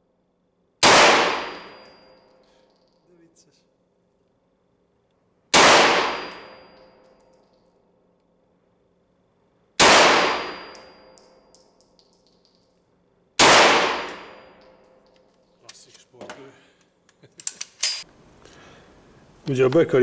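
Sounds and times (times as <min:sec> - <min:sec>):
gunshots echoing indoors: 0:00.8 - 0:02.2, 0:05.5 - 0:07.3, 0:09.7 - 0:12.0, 0:13.4 - 0:15.2.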